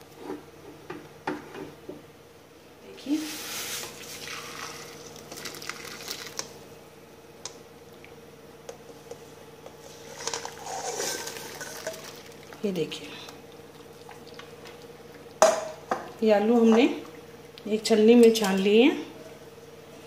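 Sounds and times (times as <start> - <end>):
steady low hum: 0.0 - 20.0
water splashing into strainer: 4.0 - 6.5, 10.2 - 12.6.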